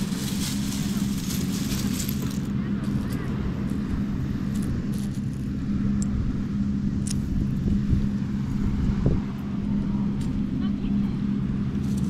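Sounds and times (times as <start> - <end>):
low engine-like drone: 0.0 - 12.0.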